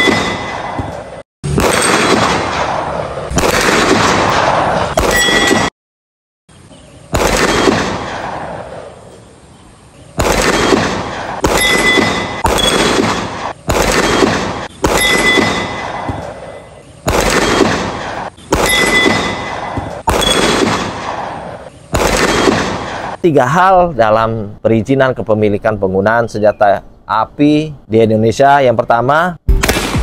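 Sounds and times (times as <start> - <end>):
echoing gunshots: 0.0 - 5.7, 7.1 - 9.1, 10.2 - 23.2, 29.5 - 30.0.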